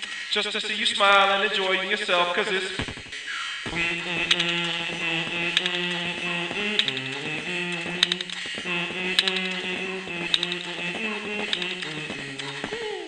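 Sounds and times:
sharp percussive mouth clicks: 2.8s - 13.0s
person humming a sustained note: 3.7s - 13.0s.

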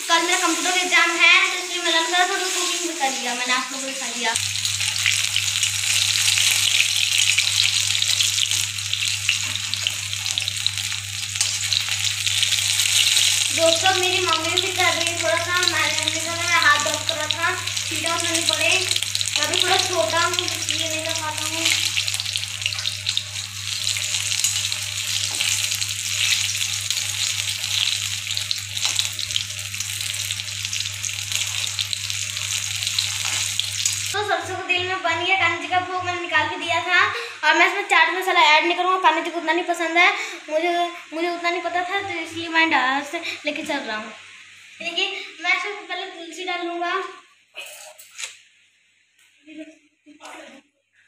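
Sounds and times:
food deep-frying in oil: 0.0s - 34.2s.

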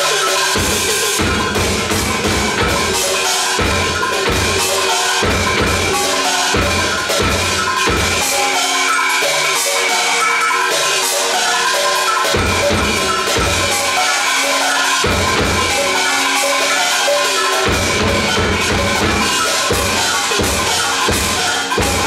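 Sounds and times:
pitched percussion strokes: 0.0s - 22.0s
deep drum strokes: 0.6s - 8.3s.

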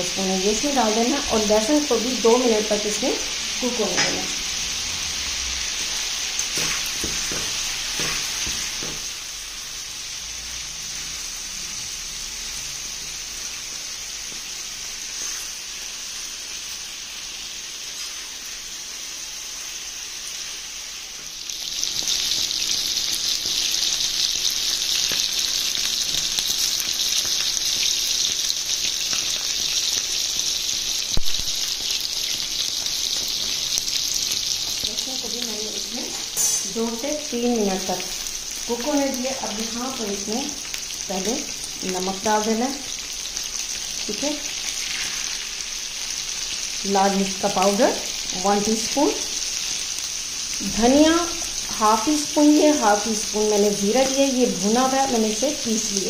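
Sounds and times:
meat sizzling in oil: 0.0s - 56.0s.

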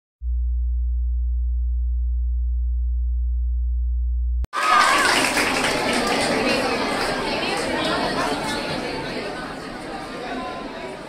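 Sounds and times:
deep low tone: 0.2s - 4.5s
chatter of voices echoing: 4.6s - 11.0s.

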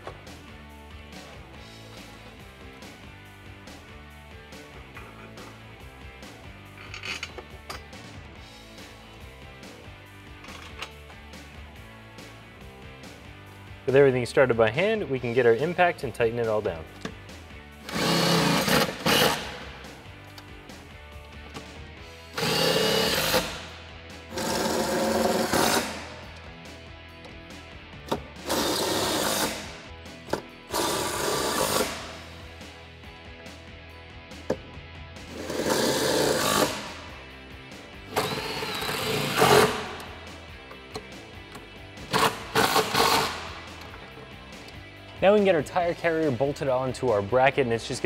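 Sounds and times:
cordless impact driver running: 17.8s - 19.6s, 22.4s - 23.7s, 24.3s - 26.1s, 30.7s - 32.2s, 35.4s - 37.0s, 38.1s - 40.0s, 42.1s - 43.6s.

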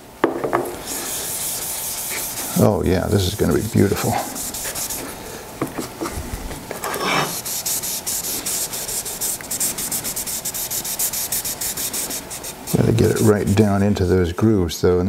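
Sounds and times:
cloth rag wiping wood: 0.8s - 5.2s, 7.0s - 13.7s.

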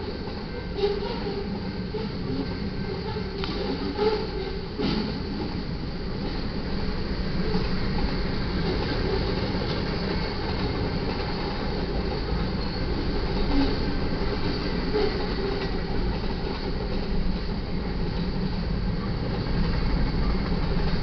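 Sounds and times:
train wheels rumbling on rail: 0.0s - 21.0s
wheel squeals: 0.4s - 5.1s, 12.4s - 15.8s.

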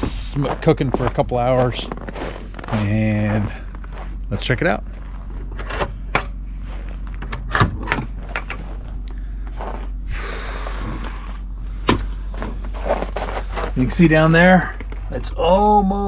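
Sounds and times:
footsteps crunching in snow: 0.0s - 5.5s, 6.4s - 7.2s, 8.6s - 11.0s, 12.1s - 15.2s.

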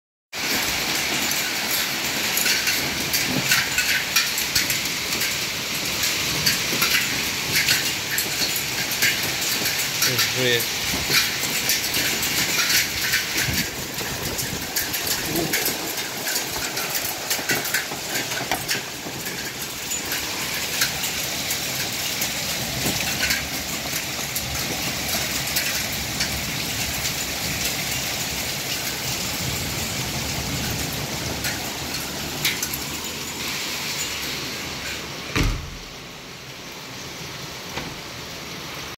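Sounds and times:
hailstones rattling on hard surfaces: 0.3s - 36.2s
heavy thump: 35.3s - 35.9s.

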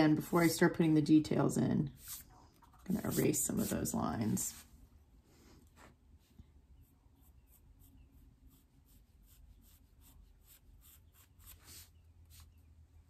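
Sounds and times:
pencil scratching on paper: 2.0s - 4.6s, 7.2s - 12.6s.

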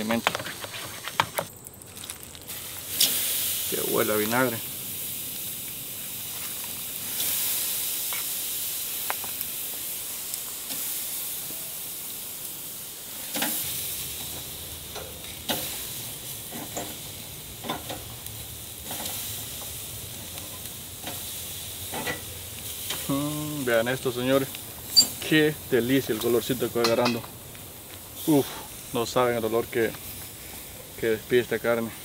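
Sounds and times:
meat sizzling on a grill: 0.0s - 32.0s
metal fork clinking on grill: 24.9s - 25.2s.

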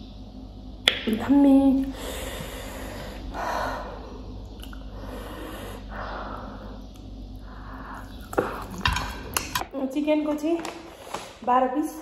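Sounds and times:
person chewing food: 4.5s - 5.1s, 6.8s - 9.6s.

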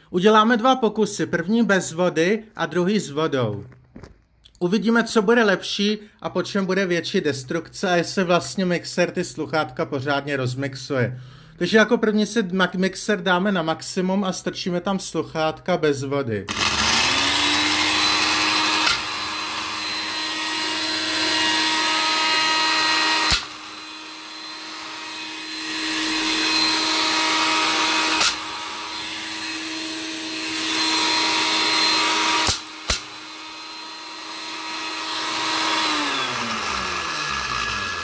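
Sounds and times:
blender motor running: 16.5s - 38.0s.

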